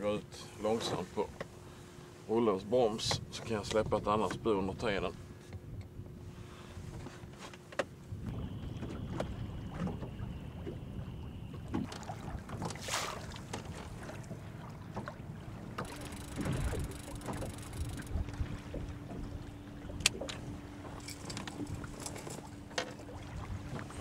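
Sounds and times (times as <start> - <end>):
soft buzz with low hum: 0.0 - 24.0
water lapping at a hull: 0.0 - 24.0
wind on the microphone: 8.1 - 12.7, 16.4 - 22.2
fishing reel clicks: 15.8 - 18.2.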